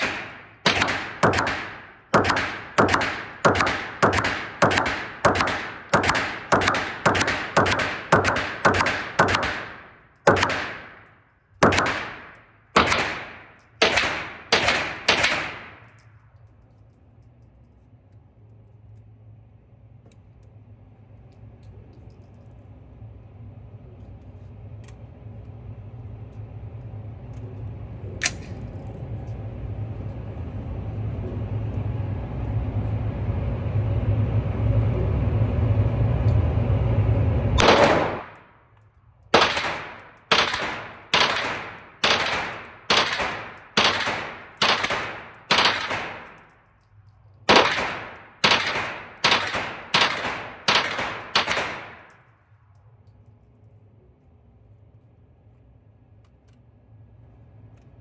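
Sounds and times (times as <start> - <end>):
gunshots: 0.0 - 15.9, 37.6 - 38.5, 39.3 - 46.5, 47.5 - 52.2
low rumbling noise: 0.0 - 58.0.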